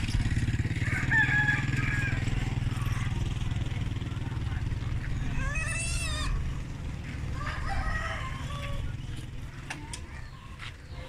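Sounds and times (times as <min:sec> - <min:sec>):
piglets squealing: 0:05.2 - 0:06.5.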